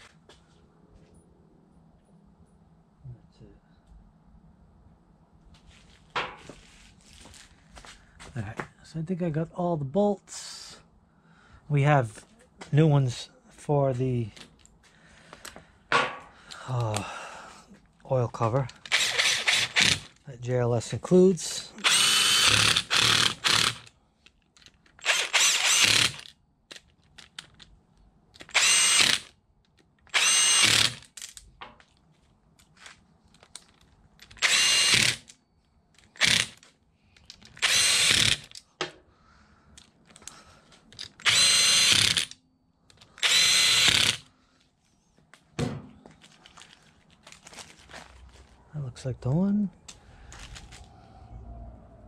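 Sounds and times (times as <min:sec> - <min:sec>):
power driver whining: 0:18.5 - 0:20.2, 0:21.8 - 0:23.9, 0:25.0 - 0:26.3, 0:28.4 - 0:29.3, 0:30.1 - 0:31.0, 0:34.2 - 0:35.4, 0:36.0 - 0:36.6, 0:37.4 - 0:38.6, 0:41.0 - 0:44.3.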